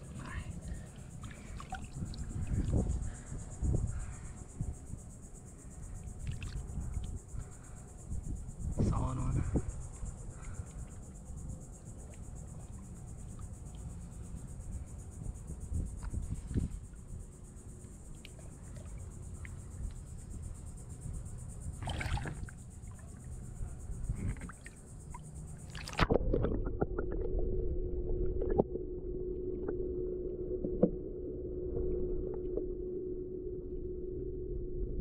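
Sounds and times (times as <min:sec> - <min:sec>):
water splashing and sloshing: 0:00.0 - 0:03.3, 0:05.9 - 0:07.7, 0:11.8 - 0:14.3, 0:18.0 - 0:20.4, 0:21.7 - 0:28.8
insects buzzing: 0:00.0 - 0:26.0
underwater low hum: 0:00.0 - 0:35.0.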